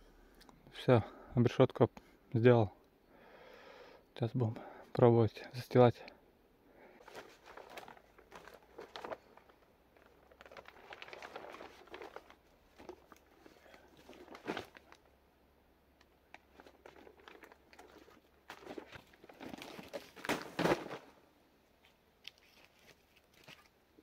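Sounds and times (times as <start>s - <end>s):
plastic sheet crinkling and rustling: 7.0s - 15.1s, 16.3s - 21.2s, 21.8s - 23.8s.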